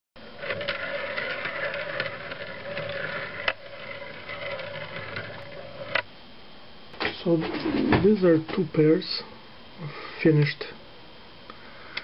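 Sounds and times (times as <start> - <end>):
metal wheels rolling on rails: 0.4 - 6.0.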